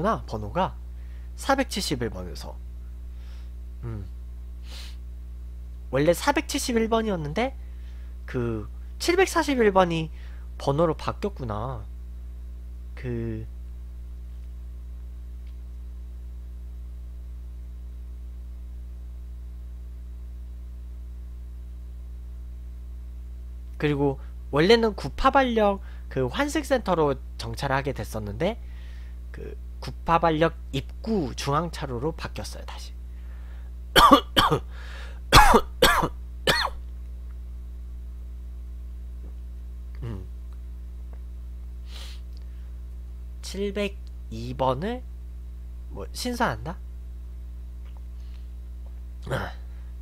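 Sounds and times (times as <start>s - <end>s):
electrical mains hum: 0.0s - 50.0s
faint hiss: 2.4s - 5.2s, 41.8s - 42.9s
man coughing: 34.0s - 34.7s, 35.3s - 36.8s.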